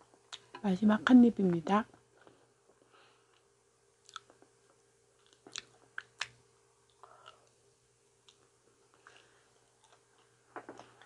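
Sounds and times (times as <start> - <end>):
chewing with wet mouth clicks: 4.0 - 4.5, 5.2 - 7.6.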